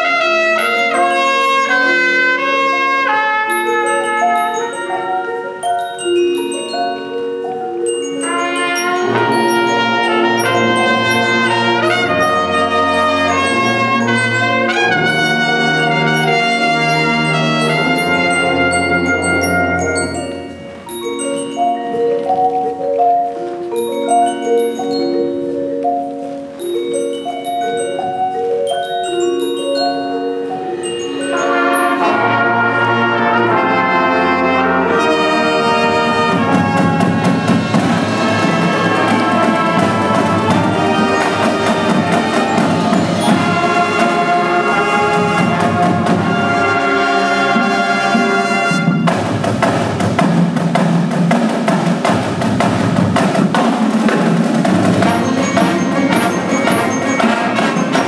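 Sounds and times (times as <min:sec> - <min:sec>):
brass and saxophones: 0:00.0 - 0:07.2, 0:07.9 - 0:21.3, 0:28.8 - 0:49.6, 0:54.0 - 0:58.0
mallet percussion: 0:00.0 - 0:58.0
marching band playing: 0:00.0 - 0:58.0.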